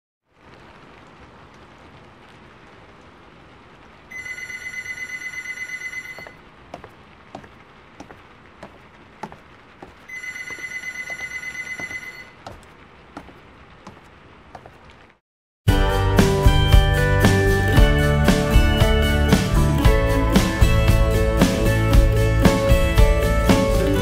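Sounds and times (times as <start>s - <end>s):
rain-like hiss with ticks: 0.3s - 10.1s, 12.4s - 15.2s
telephone ringing: 4.1s - 6.4s, 10.1s - 12.4s.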